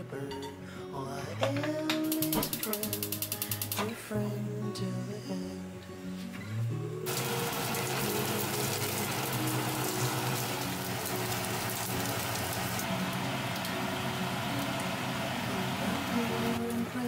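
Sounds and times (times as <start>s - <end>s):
background music: 0.0s - 17.0s
pork sizzling in oil: 7.1s - 16.7s
cabbage stir-frying: 7.1s - 17.0s.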